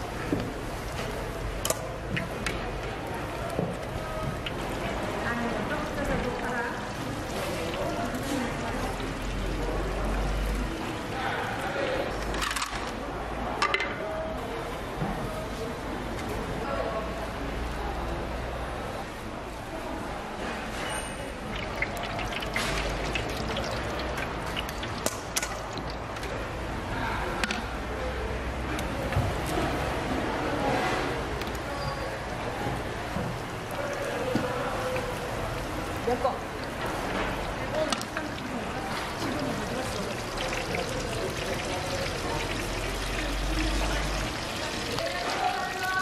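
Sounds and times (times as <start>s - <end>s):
deep fryer oil sizzling and popping: 0.0s - 12.8s, 21.3s - 26.6s, 31.4s - 46.0s.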